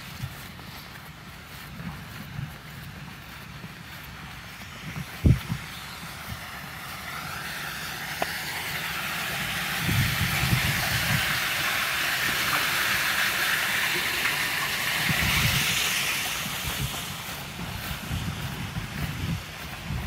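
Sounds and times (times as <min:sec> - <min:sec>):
water rushing into storm drain: 0:04.6 - 0:20.0.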